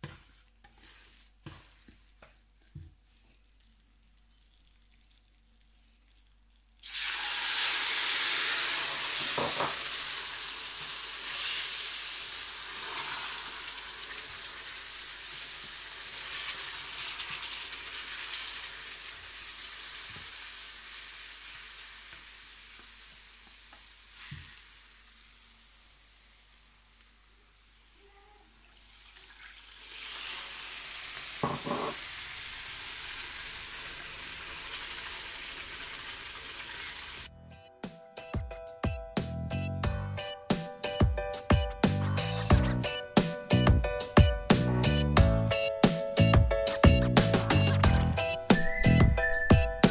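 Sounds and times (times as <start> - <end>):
loud sizzle in hot pan: 6.8 - 28.1, 28.7 - 37.3.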